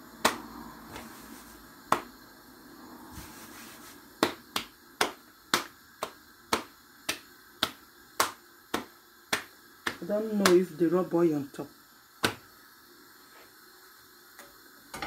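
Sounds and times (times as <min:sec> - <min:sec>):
hands slapping dough on worktop: 0:00.2 - 0:02.2, 0:03.2 - 0:10.7, 0:12.2 - 0:12.5.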